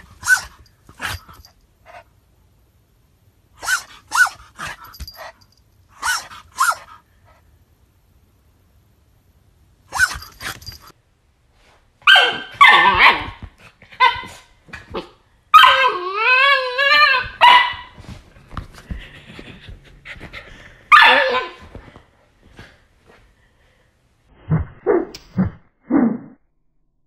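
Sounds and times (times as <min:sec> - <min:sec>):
dog barking and yipping: 0:00.0 - 0:02.0, 0:03.6 - 0:05.4, 0:06.0 - 0:07.0, 0:09.9 - 0:10.9, 0:12.0 - 0:18.0, 0:20.9 - 0:21.6
dog wavering cry: 0:03.6 - 0:04.4, 0:09.9 - 0:10.3, 0:12.1 - 0:13.3, 0:15.5 - 0:17.8, 0:20.9 - 0:21.6.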